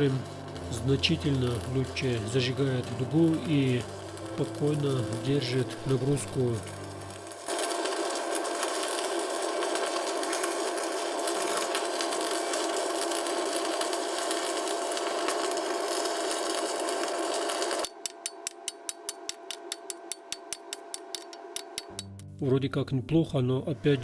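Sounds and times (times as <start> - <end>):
welding arc crackling sizzle: 0.0 - 22.2
chipping hammer tapping metal: 11.7 - 22.4.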